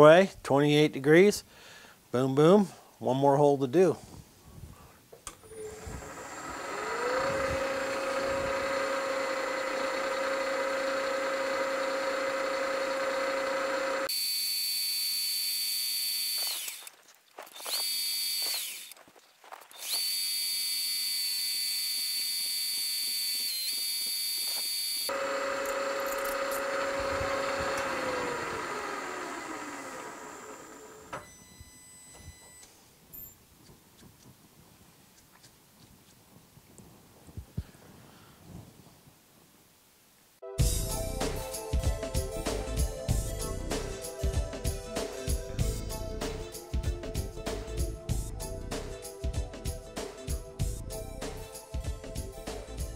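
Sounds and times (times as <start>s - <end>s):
milling machine spindle running: 5.4s - 16.8s, 17.6s - 19.0s, 19.8s - 31.2s
drill bit cutting metal whine: 5.5s - 16.8s, 17.6s - 19.0s, 19.8s - 32.6s.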